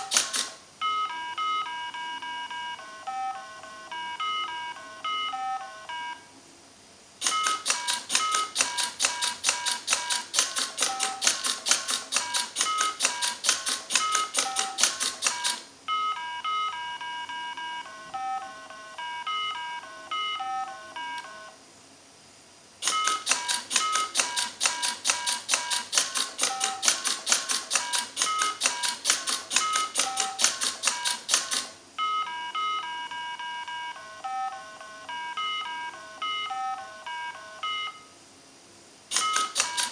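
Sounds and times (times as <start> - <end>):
rapid mechanical clicks: 0.0 - 0.6, 7.2 - 15.7, 22.8 - 31.8, 39.1 - 39.9
electronic game beeping tones: 0.0 - 6.3, 7.2 - 21.6, 22.8 - 27.0, 27.8 - 38.1.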